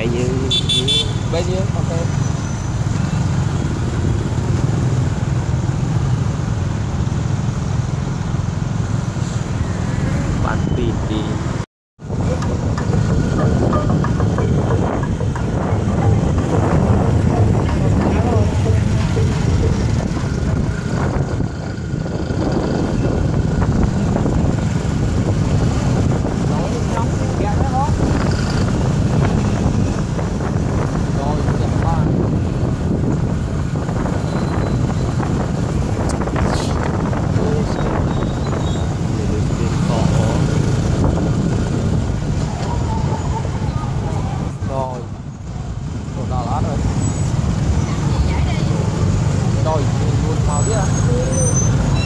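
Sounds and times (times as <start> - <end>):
vehicle engine and road noise: 0.0 - 52.0
wind on microphone: 12.0 - 46.2.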